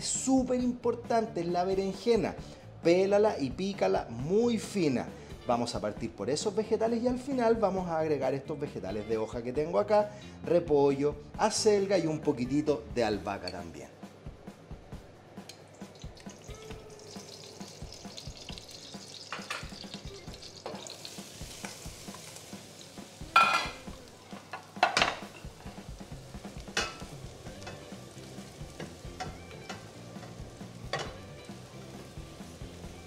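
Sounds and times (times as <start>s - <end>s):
vegetables sizzling in oil: 15.8s - 33.0s
clatters in metal pot: 18.8s - 19.9s.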